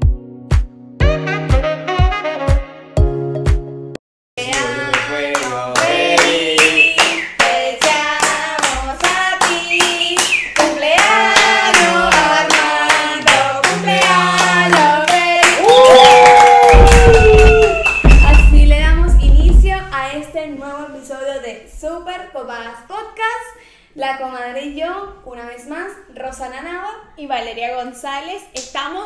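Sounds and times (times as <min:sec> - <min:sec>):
person singing: 0:04.4 - 0:15.8
handclap beat: 0:04.4 - 0:19.7.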